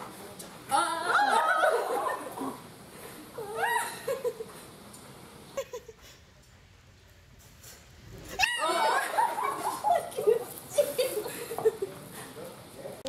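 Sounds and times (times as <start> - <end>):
women squealing and shrieking: 0.7 - 2.5, 3.4 - 4.3, 8.4 - 10.3
women laughing: 0.8 - 2.6, 3.4 - 4.6, 5.6 - 6.2, 8.4 - 12.2.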